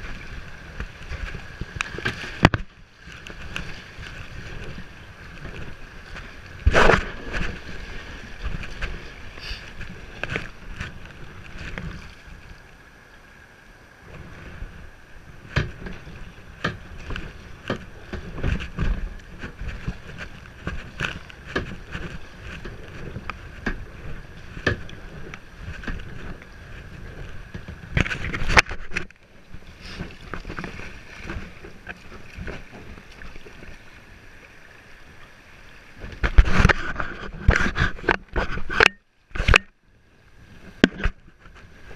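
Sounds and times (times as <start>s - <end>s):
moving river water: 0.0s - 41.9s
paddle splashes: 0.0s - 41.9s
paddle knocks: 15.4s - 29.1s.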